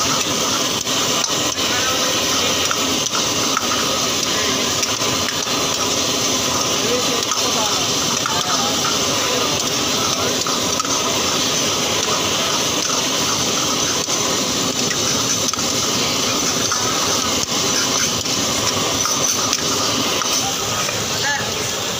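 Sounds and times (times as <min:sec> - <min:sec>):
ladle scraping a wok: 0:00.0 - 0:21.2
food sizzling in a wok: 0:00.0 - 0:21.9.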